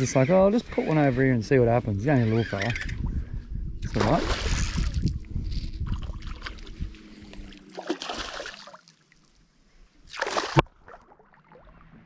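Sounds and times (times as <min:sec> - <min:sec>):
fish splashing at water surface: 0:07.7 - 0:08.8, 0:10.1 - 0:11.6.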